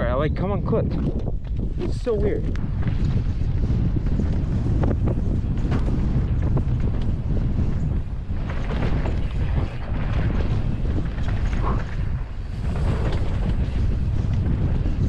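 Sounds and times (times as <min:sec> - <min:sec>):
wind buffeting microphone: 0:00.0 - 0:15.0
bike knocks and rattles: 0:00.9 - 0:15.0.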